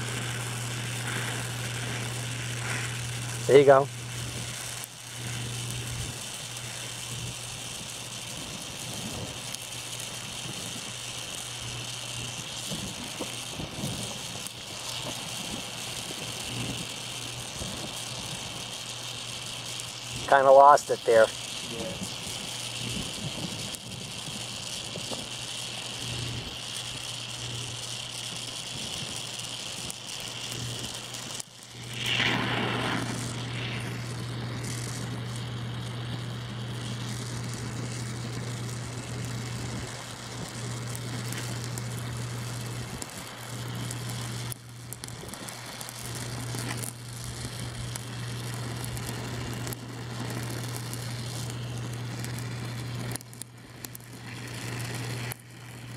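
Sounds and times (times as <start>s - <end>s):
steady low hum: 0.0s - 55.9s
welding torch hissing: 0.0s - 55.9s.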